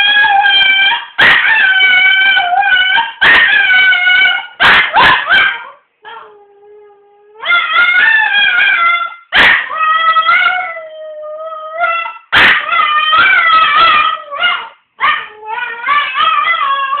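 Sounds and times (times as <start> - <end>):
dog yelping: 0.0 - 6.4, 7.4 - 10.8, 11.5 - 17.0
dog howling: 5.3 - 17.0.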